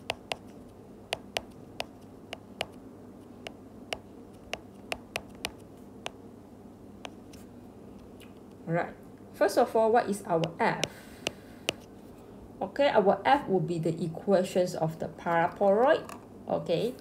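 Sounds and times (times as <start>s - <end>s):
stylus tapping on glass screen: 0.0s - 0.5s, 1.1s - 2.8s, 3.5s - 6.2s, 10.4s - 11.8s
faint room hum: 0.0s - 17.0s.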